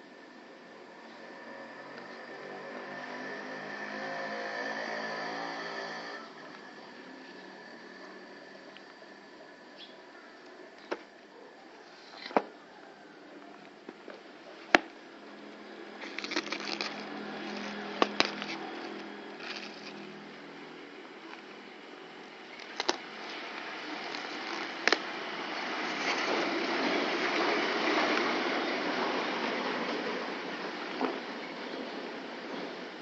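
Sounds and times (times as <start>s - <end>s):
plastic wrap crinkling: 16.0s - 20.1s, 22.5s - 25.1s.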